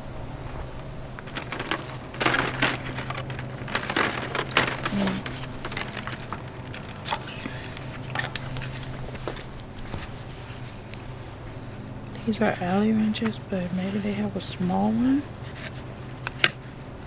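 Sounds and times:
steady low hum: 0:00.0 - 0:17.0
plastic packaging rustling: 0:00.5 - 0:10.9.

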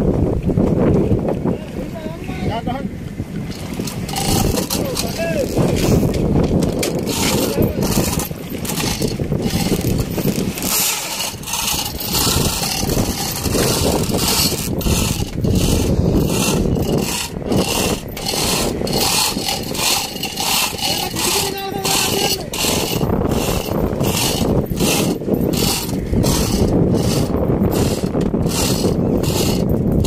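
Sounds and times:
boat engine rumbling: 0:00.0 - 0:30.0
water splashing against hull: 0:00.0 - 0:30.0
knocks and scrapes: 0:03.4 - 0:30.0
men calling out: 0:20.8 - 0:22.6.

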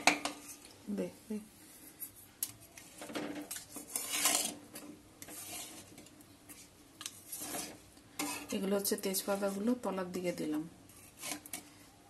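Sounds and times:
metal spatula scraping metal pan: 0:03.4 - 0:06.1, 0:07.2 - 0:11.7.

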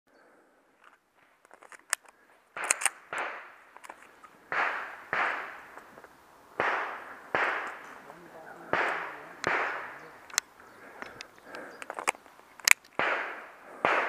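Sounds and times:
metallic pistol clicks: 0:01.5 - 0:04.1, 0:08.8 - 0:09.6, 0:10.3 - 0:13.2
echoing gunshots: 0:02.5 - 0:03.8, 0:04.4 - 0:05.8, 0:06.6 - 0:14.0.

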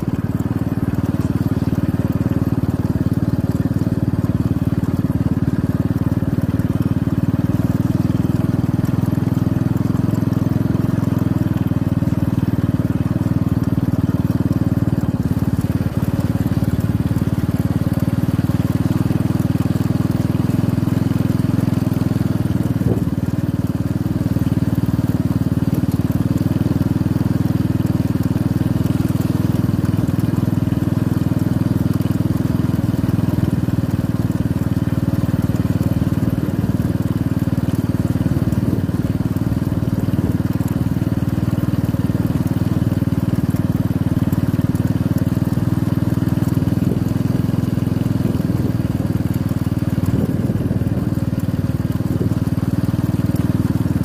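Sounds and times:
motorcycle engine cruising: 0:00.0 - 0:54.0
wind and road noise: 0:21.4 - 0:25.3, 0:48.6 - 0:54.0.

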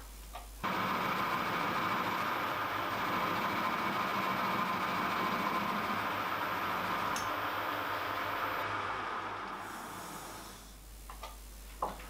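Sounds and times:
metal lathe running: 0:00.6 - 0:10.7.

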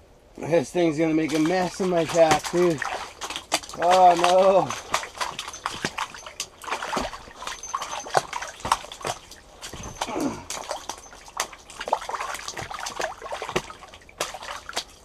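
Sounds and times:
fish flopping wet slaps: 0:01.3 - 0:15.0
short falling groan: 0:10.0 - 0:10.6.

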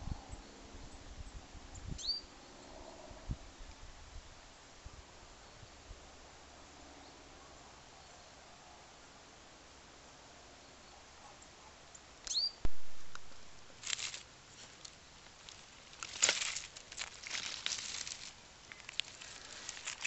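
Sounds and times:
rustling among twigs and stones: 0:12.7 - 0:20.0.

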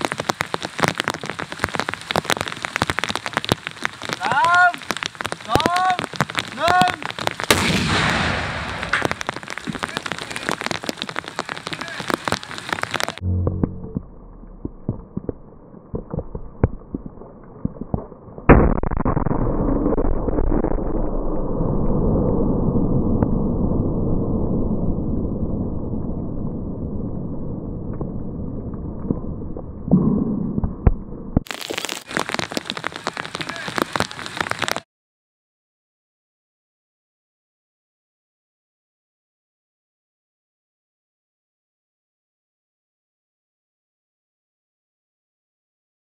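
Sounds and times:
dense crackling after explosion: 0:00.0 - 0:34.9
muffled explosive blast rumble: 0:07.3 - 0:10.8, 0:13.0 - 0:15.2
low steady hum: 0:13.2 - 0:15.1.

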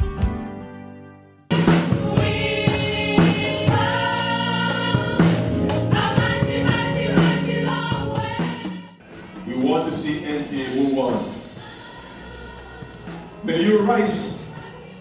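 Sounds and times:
band playing: 0:00.0 - 0:14.7
drum hits on steady beat: 0:01.5 - 0:09.0
choir singing gospel: 0:01.5 - 0:15.0.

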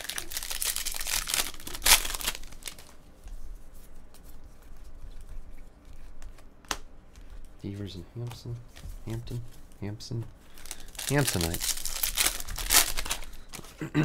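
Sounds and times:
foil wrapper tearing and crinkling: 0:00.0 - 0:03.0, 0:10.5 - 0:13.8.

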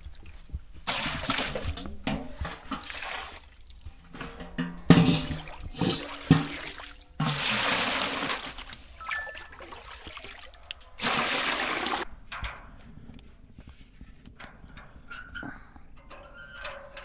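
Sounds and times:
water pouring and splashing: 0:00.0 - 0:12.1
water trickling: 0:05.2 - 0:12.1.

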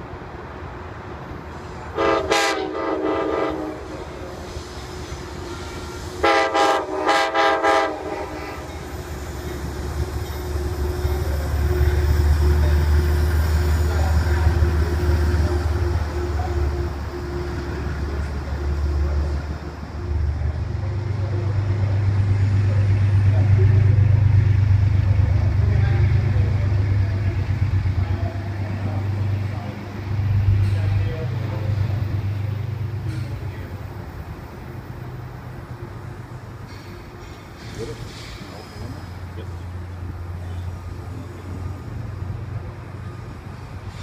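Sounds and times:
train rumbling past: 0:00.0 - 0:44.0
locomotive air horn blasts: 0:01.9 - 0:04.2, 0:05.4 - 0:08.8.

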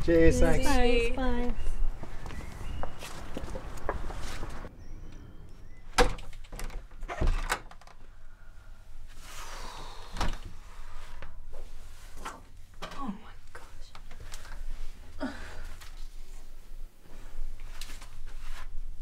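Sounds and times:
door being pushed shut: 0:06.0 - 0:07.8.

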